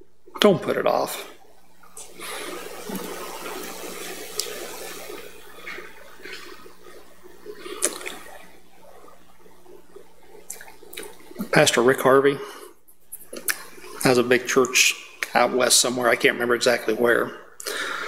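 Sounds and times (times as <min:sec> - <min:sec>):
rushing water-like hiss: 0:02.0 - 0:06.9.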